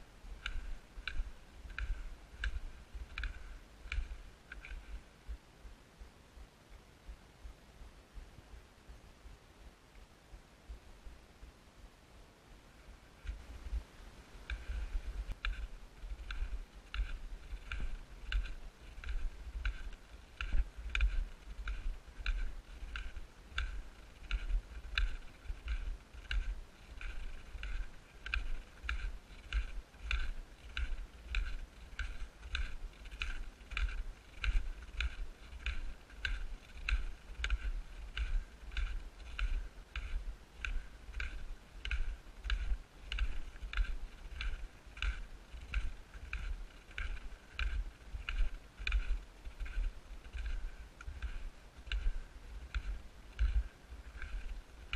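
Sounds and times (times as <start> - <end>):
footsteps crunching on snow: 13.3 - 54.9.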